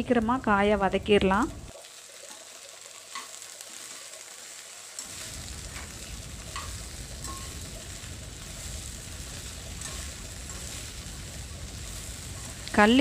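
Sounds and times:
okra sizzling in oil: 0.0 - 13.0
spatula scraping a pan: 6.5 - 7.6, 9.3 - 11.1.

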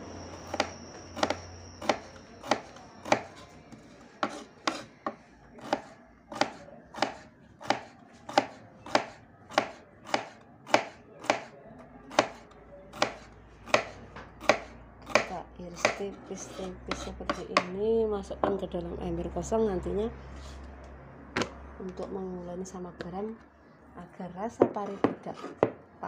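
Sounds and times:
knife slicing on wooden board: 4.2 - 4.9.

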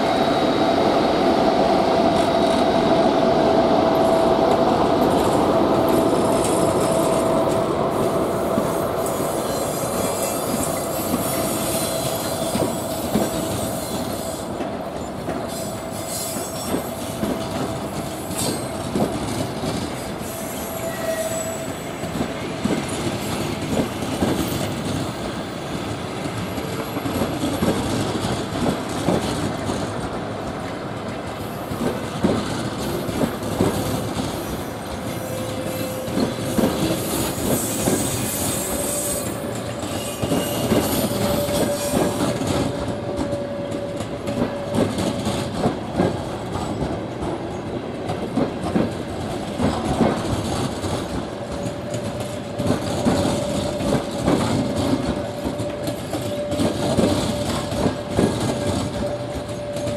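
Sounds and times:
train wheels knocking over rail joints: 22.1 - 59.9.

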